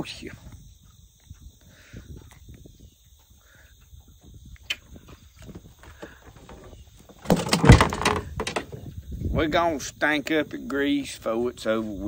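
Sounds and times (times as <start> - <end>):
clicks and rustles handling fish: 5.4 - 8.9
loud clatter: 6.4 - 8.8.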